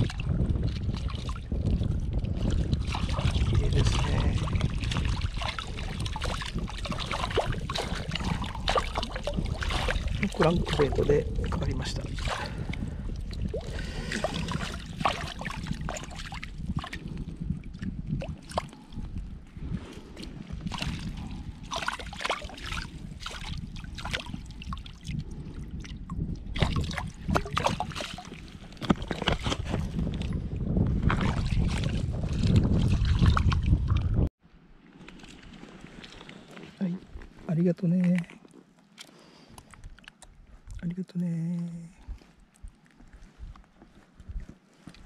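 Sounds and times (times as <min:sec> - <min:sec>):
low rumble: 0:00.0 - 0:21.8, 0:29.8 - 0:34.8
water splashing and sloshing: 0:00.0 - 0:45.0.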